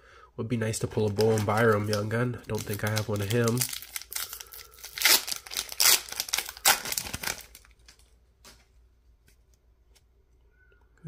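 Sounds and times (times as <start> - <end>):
card pack wrapper crinkling: 0.8 - 8.6.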